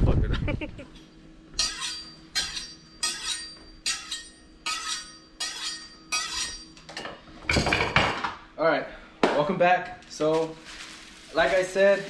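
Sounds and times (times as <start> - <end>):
knife scraping on sharpening steel: 1.6 - 6.8.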